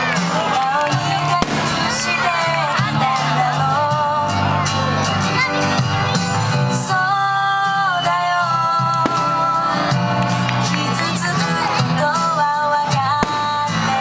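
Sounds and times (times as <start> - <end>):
steady musical accompaniment: 0.0 - 14.0
person singing a melody: 0.4 - 4.7, 6.7 - 10.0, 10.8 - 14.0.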